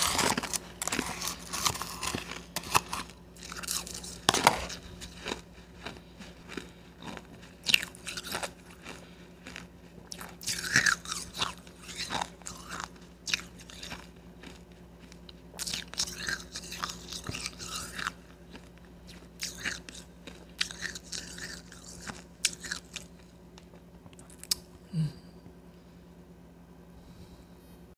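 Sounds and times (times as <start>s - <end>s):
ice crunching and chewing: 0.0s - 24.6s.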